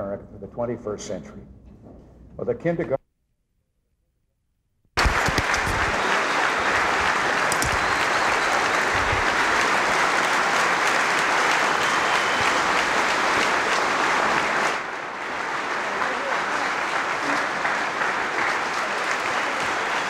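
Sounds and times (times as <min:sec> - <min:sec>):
audience applauding: 0:05.0 - 0:20.0.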